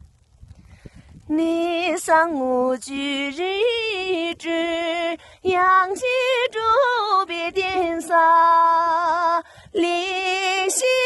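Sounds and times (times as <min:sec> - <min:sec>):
woman singing unaccompanied: 0:01.3 - 0:11.0.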